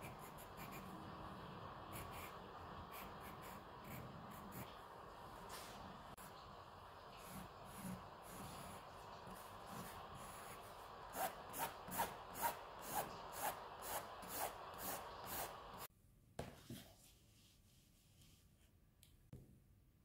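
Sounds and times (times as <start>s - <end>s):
pencil scratching on paper: 0.0s - 4.9s.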